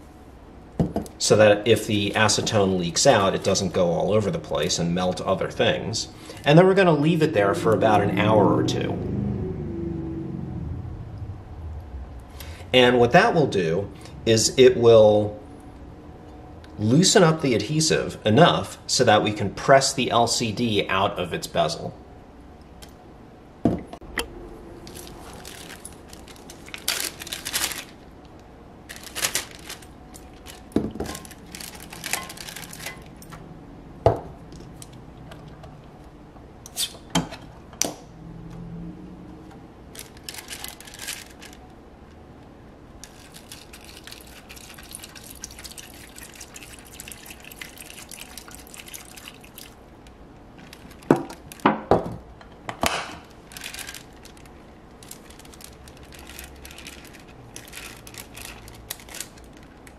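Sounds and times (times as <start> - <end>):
liquid trickling into plastic bag: 24.8 - 28.1, 28.8 - 33.2, 40.0 - 41.6, 43.0 - 50.0, 50.6 - 51.7, 53.3 - 59.9.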